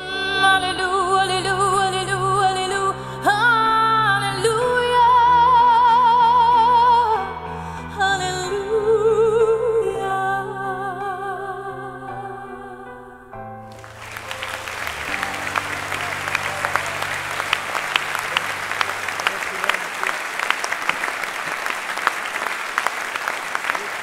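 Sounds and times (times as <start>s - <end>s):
person singing with vibrato: 0.0s - 13.3s
audience applause: 13.7s - 24.0s.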